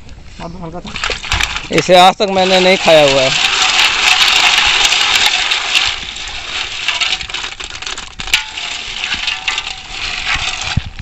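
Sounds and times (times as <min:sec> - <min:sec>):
snail shells clattering in a pot: 0:00.8 - 0:11.0
water stirred by hand: 0:00.9 - 0:11.0.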